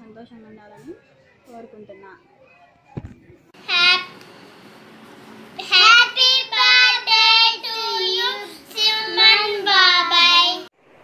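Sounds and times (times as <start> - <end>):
boys singing together: 5.6 - 10.7.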